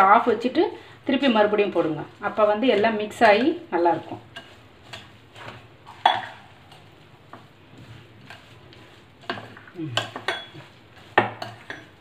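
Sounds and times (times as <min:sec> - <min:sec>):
spoon stirring dry mix: 0:01.2 - 0:12.0.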